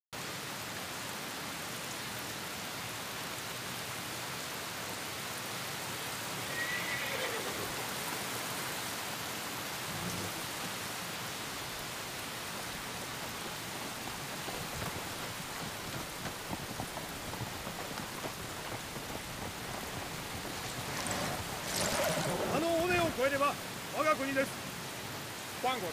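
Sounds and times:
heavy rain: 0.2 - 25.9
horse whinnying: 6.5 - 7.9, 19.9 - 23.2.

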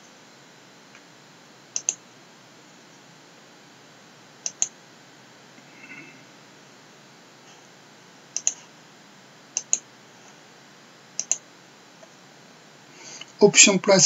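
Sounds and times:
computer mouse button clicks: 1.8 - 2.0, 8.4 - 8.6, 11.2 - 11.4.

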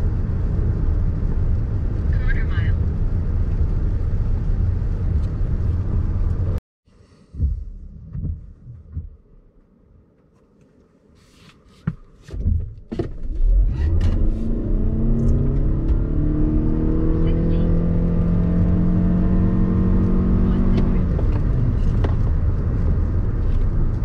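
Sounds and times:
low thumps and clicks: 7.3 - 9.4, 11.9 - 16.4, 20.0 - 24.0
car engine accelerating: 13.0 - 24.0.

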